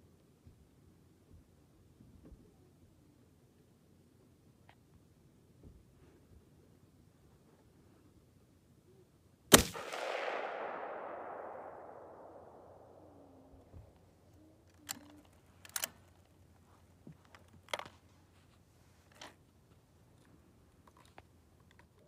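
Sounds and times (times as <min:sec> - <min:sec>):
rifle shot echo: 0:09.5 - 0:13.7
rifle bolt clicks: 0:09.6 - 0:12.9, 0:14.8 - 0:16.0.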